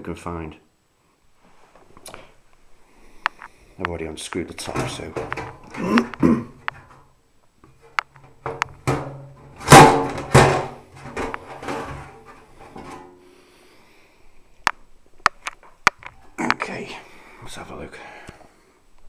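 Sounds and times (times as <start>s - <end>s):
metal cover clattering: 8.2s - 13.1s
sheet metal cover knocks: 8.4s - 12.1s.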